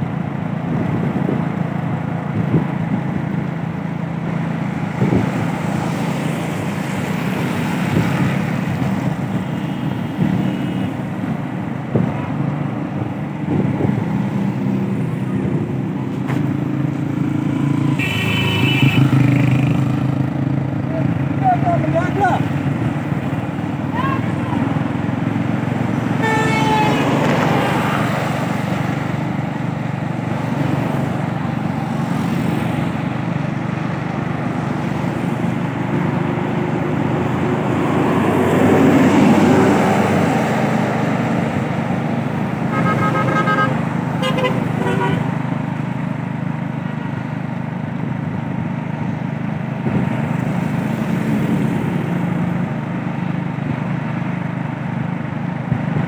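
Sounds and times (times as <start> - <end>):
vehicle on wet road: 0.0 - 56.0
vehicle passing: 13.5 - 20.6, 21.4 - 45.7
vehicle horn toots: 18.0 - 19.2, 26.2 - 27.2, 42.7 - 45.3.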